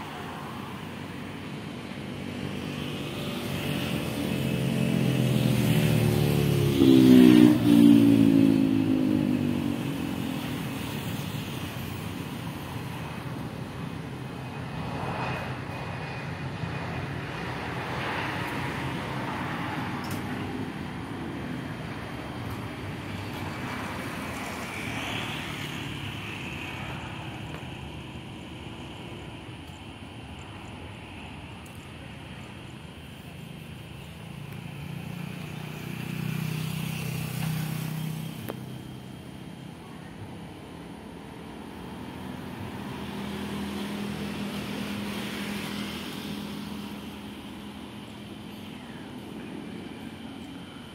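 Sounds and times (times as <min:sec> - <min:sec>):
vehicle passing close by: 0:02.7 - 0:11.3.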